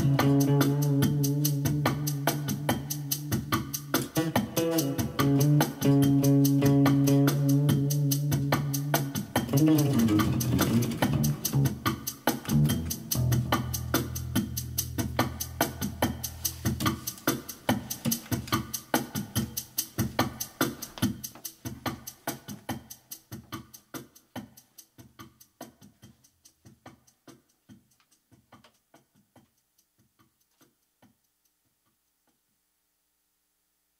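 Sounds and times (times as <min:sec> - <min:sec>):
electric bass playing low notes: 0:00.0 - 0:16.4
drum machine beat: 0:00.0 - 0:31.3.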